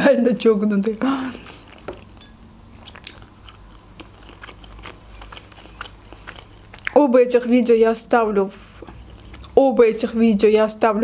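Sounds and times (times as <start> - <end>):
chewing with wet clicks: 0.8 - 7.0, 8.7 - 10.1.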